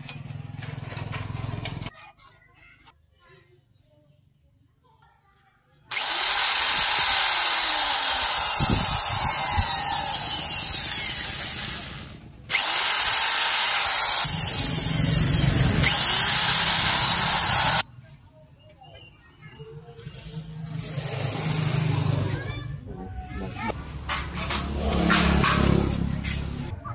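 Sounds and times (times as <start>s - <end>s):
electric drill boring through wood: 5.9s - 17.8s.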